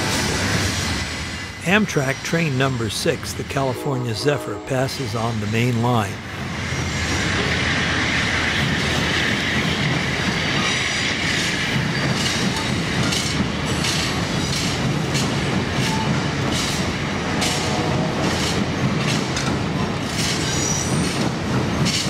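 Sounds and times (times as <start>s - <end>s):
train wheels rumbling on rail: 0.0s - 22.0s
wheels clacking over rail joints: 11.2s - 22.0s.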